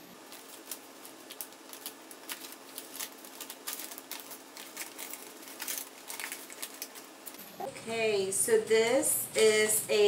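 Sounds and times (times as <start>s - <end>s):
paper bag crinkling: 0.1s - 7.4s.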